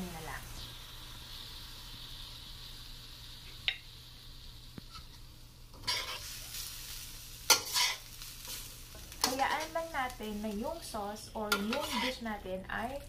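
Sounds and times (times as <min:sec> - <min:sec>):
sauce sizzling in a wok: 0:00.0 - 0:13.0
metal spatula scraping wok: 0:04.9 - 0:06.7, 0:07.5 - 0:09.7, 0:11.4 - 0:13.0.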